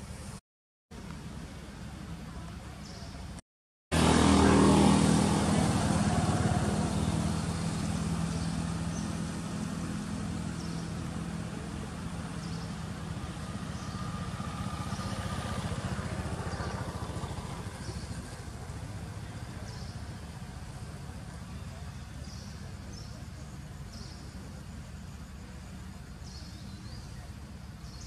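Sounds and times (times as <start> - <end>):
vehicle engine running: 3.9 - 28.0.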